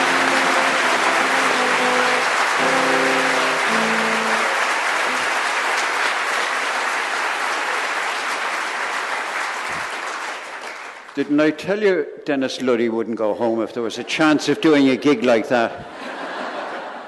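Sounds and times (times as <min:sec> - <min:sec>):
guitar chords: 0:00.0 - 0:05.4
congregation applauding: 0:00.0 - 0:11.4.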